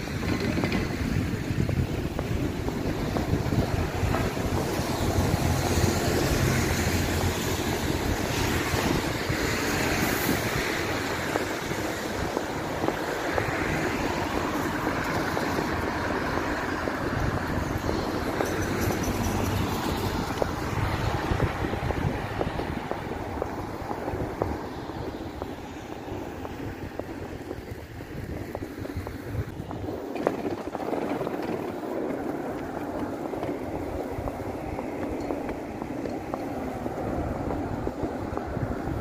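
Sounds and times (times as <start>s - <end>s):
road traffic noise: 0.0s - 39.0s
wind buffeting microphone: 0.0s - 39.0s
vehicle passing hiss: 0.9s - 30.1s.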